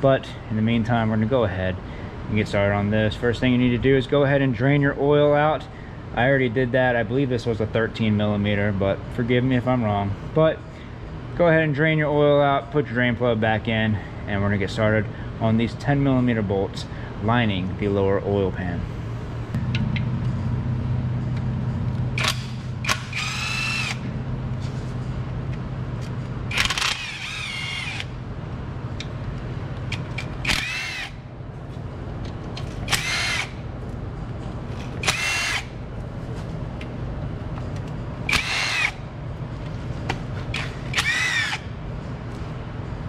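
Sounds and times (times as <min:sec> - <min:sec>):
steady low hum: 0:00.0 - 0:43.0
cordless power tool spinning: 0:22.2 - 0:24.0, 0:26.5 - 0:28.1, 0:30.4 - 0:31.2, 0:32.8 - 0:33.6, 0:35.0 - 0:35.7, 0:38.3 - 0:39.0, 0:40.6 - 0:41.7.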